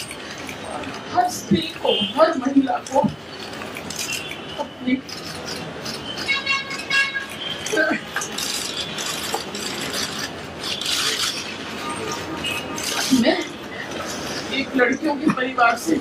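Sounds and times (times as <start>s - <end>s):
indistinct voices: 0.0s - 16.0s
crowd murmur: 4.6s - 16.0s.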